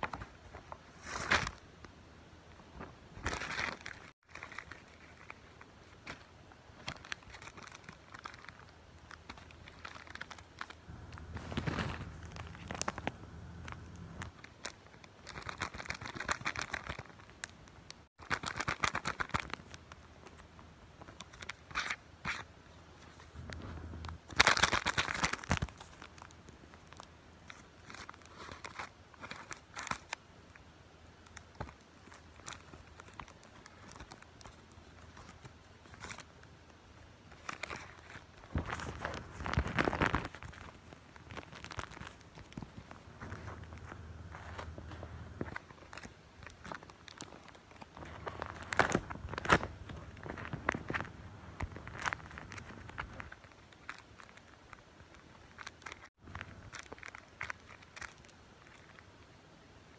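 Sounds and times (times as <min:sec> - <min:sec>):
paper and plastic crinkling: 0:00.0 - 0:01.6, 0:02.8 - 0:30.6, 0:31.2 - 0:36.4, 0:37.3 - 0:59.2.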